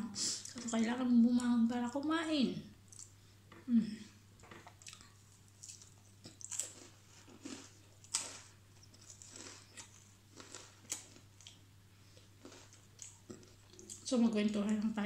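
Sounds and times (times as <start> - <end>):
person crunching a biscuit: 4.7 - 11.6, 12.2 - 14.1.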